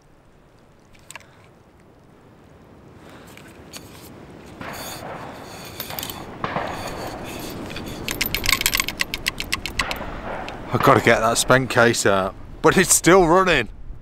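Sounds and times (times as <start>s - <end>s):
gun handling scraping and clicking: 0.8s - 1.6s, 3.2s - 10.7s
spent case rattling: 3.7s - 10.6s.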